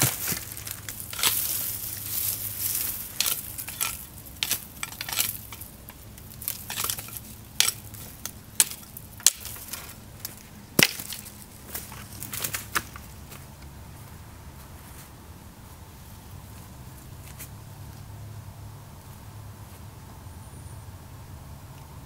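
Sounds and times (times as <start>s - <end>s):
machete chopping branches: 0.0s - 13.1s
dry leaves and twigs crunching: 0.0s - 18.1s.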